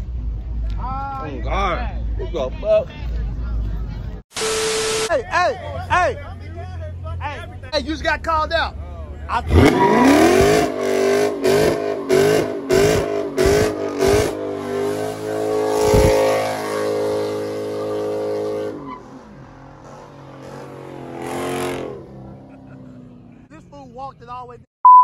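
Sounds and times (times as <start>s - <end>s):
car engine revving: 9.3s - 23.6s.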